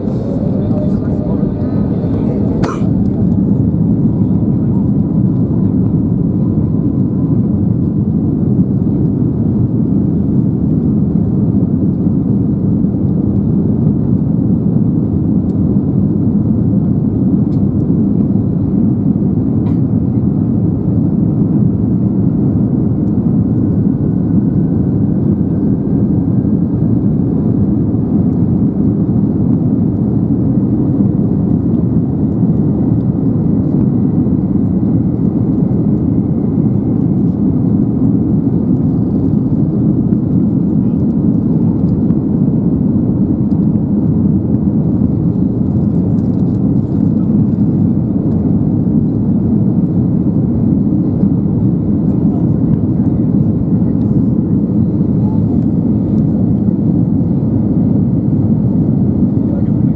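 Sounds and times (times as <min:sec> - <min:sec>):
faint rising whine: 0:00.0 - 0:04.3
airliner engine rumble in cabin: 0:00.0 - 0:59.9.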